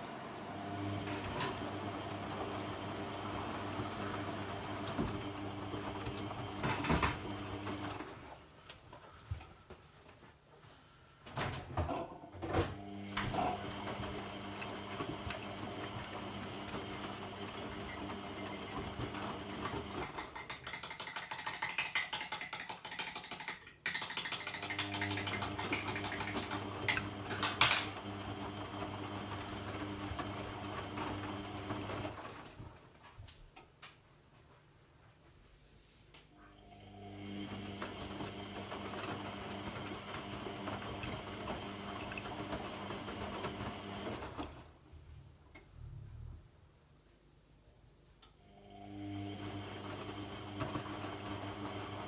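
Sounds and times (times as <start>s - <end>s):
washing machine motor humming: 0.0s - 8.4s, 11.4s - 20.2s, 24.6s - 32.8s, 36.5s - 44.8s, 48.4s - 52.0s.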